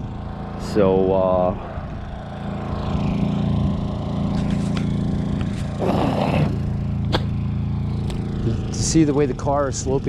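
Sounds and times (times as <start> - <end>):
portable generator humming: 0.0 - 10.0
scraping rustle: 4.3 - 5.8.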